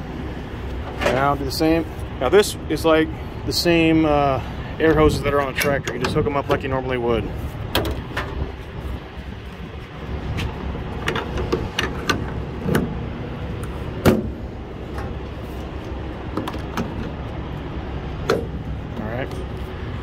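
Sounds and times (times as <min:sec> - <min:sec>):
truck engine idling: 0:00.0 - 0:20.0
metal couplings clicking and knocking: 0:05.3 - 0:06.6.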